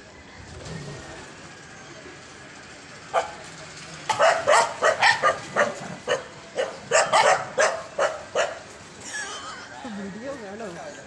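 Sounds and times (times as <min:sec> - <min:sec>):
dog barking: 0:03.1 - 0:03.4, 0:04.1 - 0:08.6.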